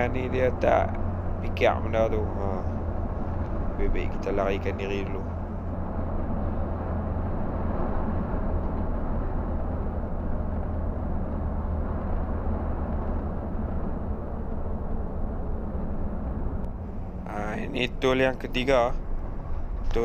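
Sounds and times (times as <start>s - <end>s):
diesel engine running: 0.0s - 20.0s
road and tyre noise: 0.0s - 20.0s.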